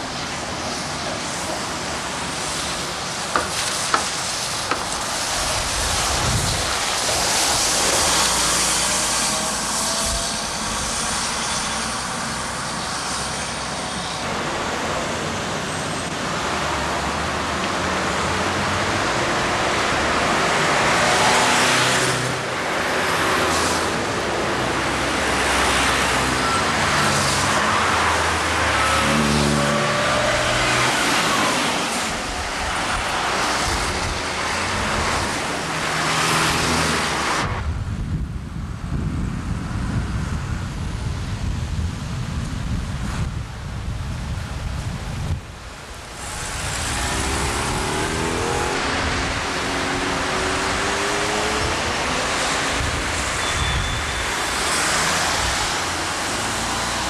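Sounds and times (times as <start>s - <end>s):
tyre hiss on wet road: 0.0s - 37.7s, 40.1s - 57.0s
cars passing: 0.0s - 37.8s, 45.4s - 57.0s
bus driving past: 45.8s - 57.0s.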